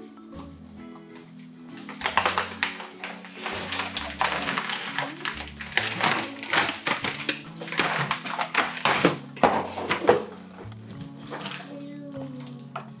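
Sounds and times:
background music: 0.0 - 13.0
plastic packaging crinkling: 1.4 - 12.8.

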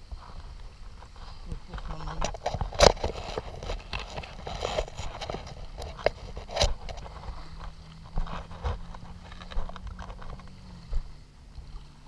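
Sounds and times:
footsteps on sand: 3.4 - 12.0.

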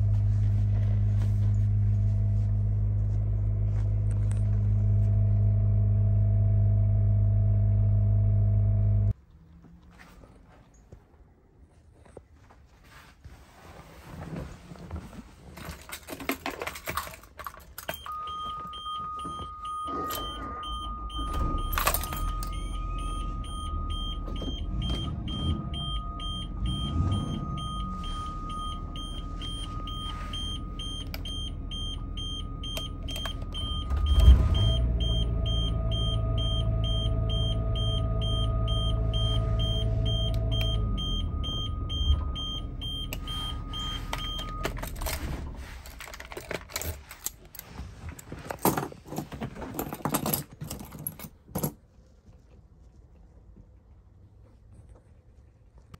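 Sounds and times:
diesel engine running: 0.0 - 9.1, 19.6 - 46.9
keys jangling: 15.6 - 18.2, 21.6 - 22.7, 44.1 - 51.8.

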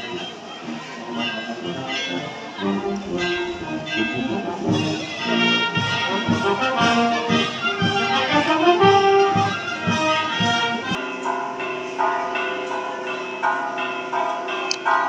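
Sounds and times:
brass band playing: 0.0 - 11.0
drum beats: 0.0 - 11.0
church bells ringing: 0.0 - 15.0.

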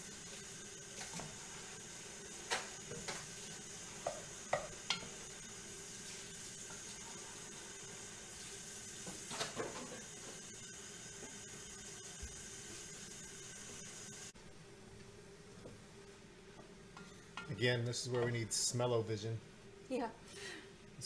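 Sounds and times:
mushrooms and onions sizzling: 0.0 - 14.3.

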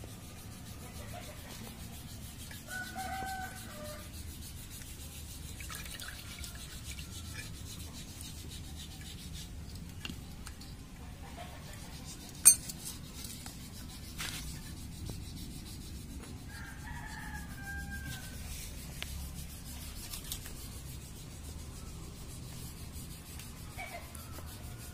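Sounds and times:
rooster crowing: 2.7 - 4.0, 16.5 - 18.5.

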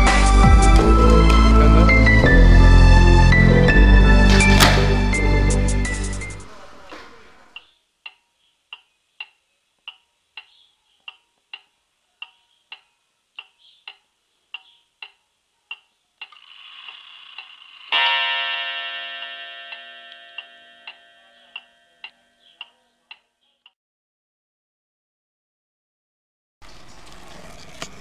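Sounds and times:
wall clock ticking: 7.6 - 10.5, 11.1 - 14.0, 14.6 - 23.2
clock mechanism whir: 16.2 - 18.2
clock striking: 16.9 - 22.8.

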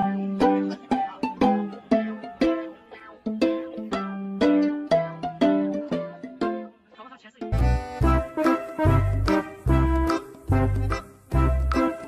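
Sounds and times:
plucked string instrument music: 0.0 - 12.0.

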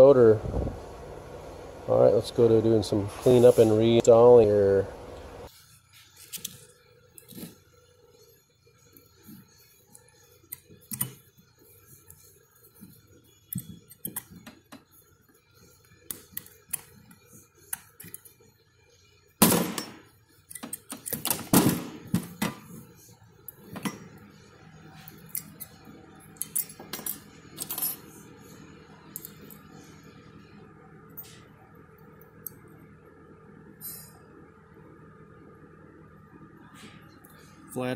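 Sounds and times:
metal parts clicking and clinking: 19.8 - 21.5, 26.4 - 28.0.

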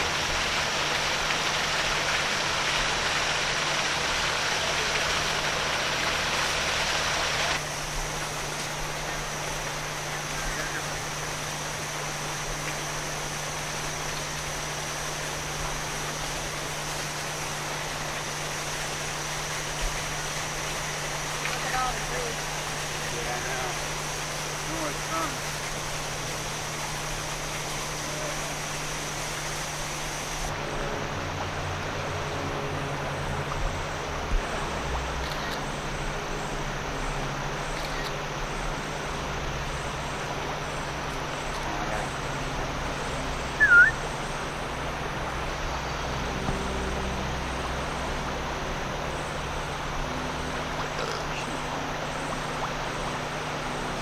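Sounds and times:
flooding river rushing: 0.0 - 54.0
short sharp chirp: 43.6 - 44.0.

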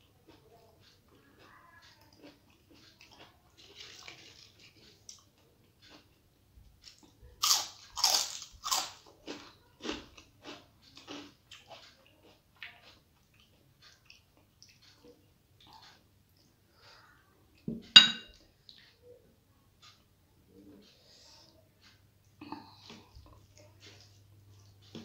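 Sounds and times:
crunchy bites and chewing: 6.9 - 11.8.

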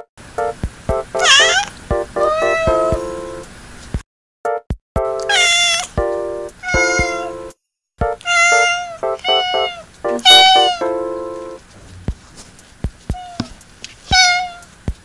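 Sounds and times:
cats meowing: 1.2 - 3.1, 5.2 - 6.0, 6.6 - 7.4, 8.2 - 11.0, 13.1 - 14.7.

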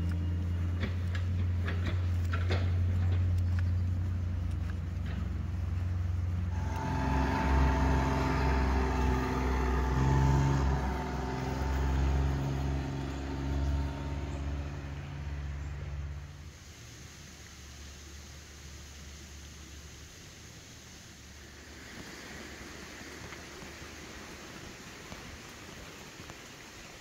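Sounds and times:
steady low hum: 0.0 - 16.5
vehicle engine running: 0.0 - 16.6.

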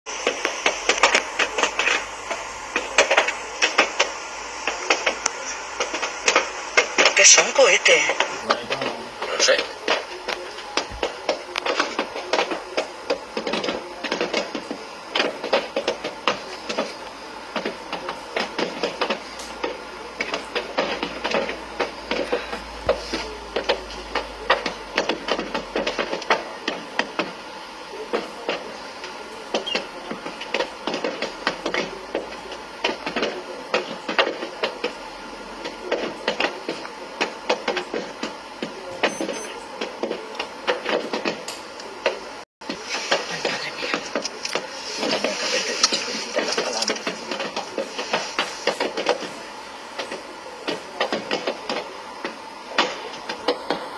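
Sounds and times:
fire popping and small explosions: 42.7 - 49.4.

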